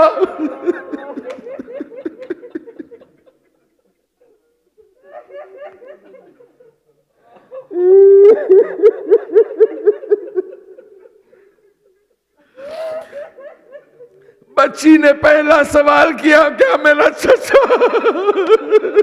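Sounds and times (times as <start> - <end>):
man sobbing and wailing: 0.0 - 3.4, 7.3 - 19.0.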